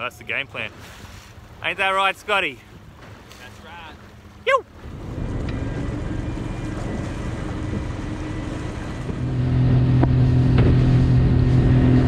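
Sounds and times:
water and wind noise: 0.0 - 12.0
outboard motor running: 0.7 - 12.0.

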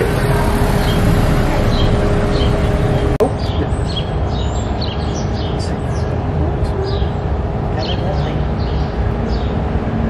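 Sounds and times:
low traffic rumble: 0.0 - 10.0
small birds chirping: 0.3 - 9.7.

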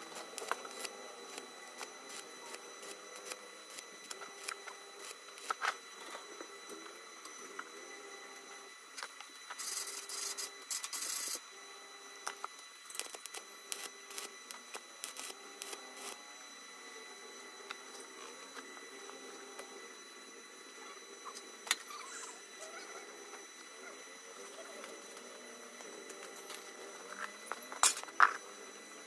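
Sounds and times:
welding arc crackling: 0.0 - 6.1, 12.2 - 16.2.

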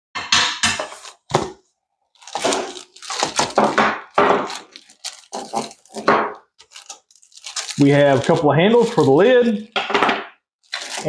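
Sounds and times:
plastic packaging crinkling: 2.1 - 9.8, 10.6 - 11.0.

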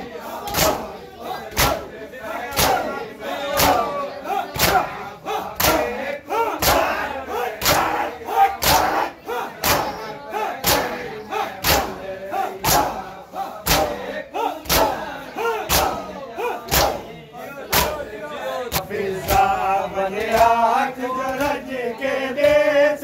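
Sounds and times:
hands slapping bare chests: 0.5 - 0.9, 1.5 - 1.8, 3.6 - 3.9, 5.6 - 5.9, 8.6 - 9.0, 9.6 - 10.0, 10.6 - 11.0, 11.6 - 12.0, 13.6 - 14.0, 14.6 - 15.0, 15.7 - 16.0, 16.7 - 17.0, 17.7 - 18.0
men shouting: 2.2 - 19.3.

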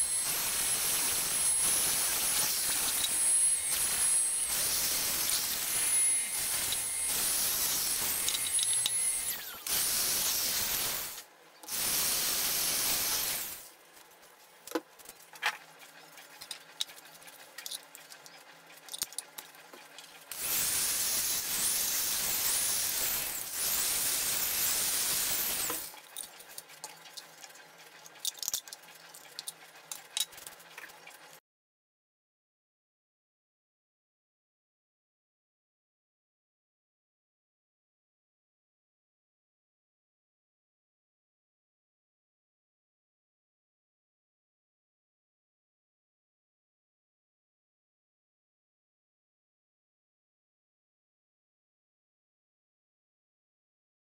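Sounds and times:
power drill boring plastic: 0.0 - 13.6, 20.3 - 26.0
plastic parts clicking and knocking: 17.6 - 20.1, 28.1 - 30.9.

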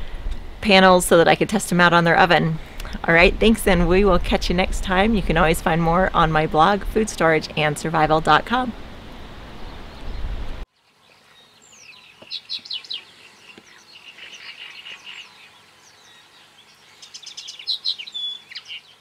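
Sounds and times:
low outdoor background rumble: 0.0 - 10.7
songbirds chirping and singing: 9.6 - 19.0.

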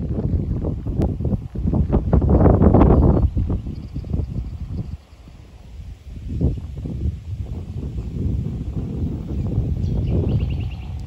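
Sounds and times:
low rumbling noise: 0.0 - 11.0
small bird chirping: 9.2 - 11.0.

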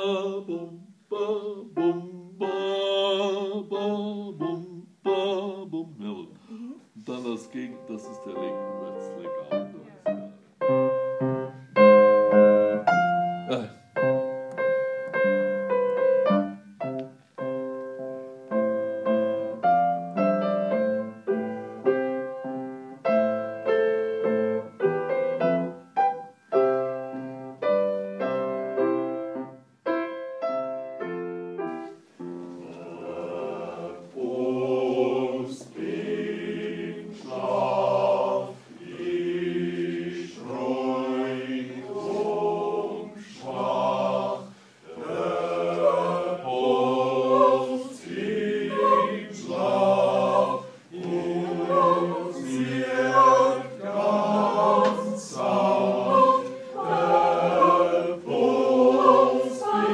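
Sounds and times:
choir singing: 0.0 - 6.3, 32.3 - 59.9
grand piano chords: 7.0 - 59.9.

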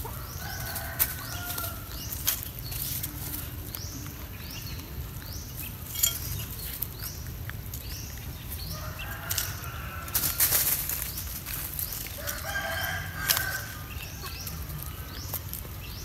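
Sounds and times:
rooster crowing: 0.1 - 1.9, 8.7 - 10.4, 12.2 - 13.8
animals eating clicks: 6.3 - 8.6.

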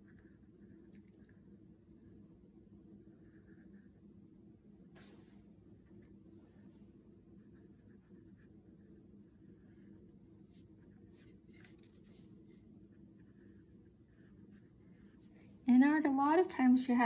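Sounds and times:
low steady hum: 0.0 - 17.0
brush strokes on paper: 4.9 - 5.5, 6.5 - 15.6.

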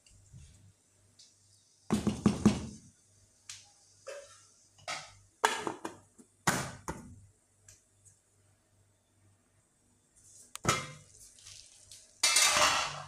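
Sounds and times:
pot lid clattering: 12.2 - 13.0.

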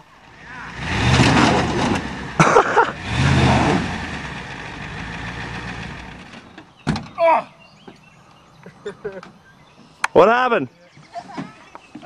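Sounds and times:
truck engine revving: 0.3 - 6.6.

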